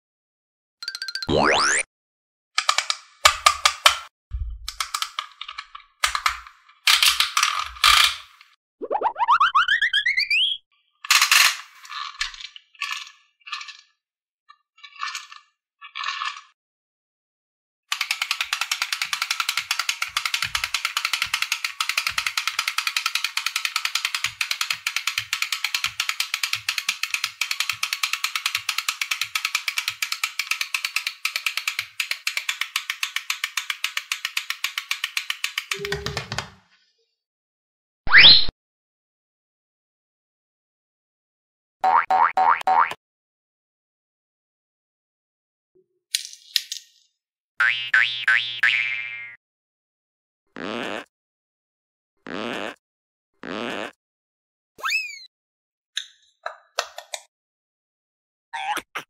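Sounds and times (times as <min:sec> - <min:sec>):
low thump: 0:04.3 - 0:04.7
ratchet-like clicking: 0:17.9 - 0:35.8.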